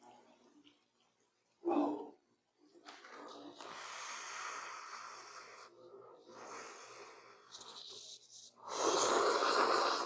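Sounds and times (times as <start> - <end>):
person slurping noodles: 7.4 - 10.0.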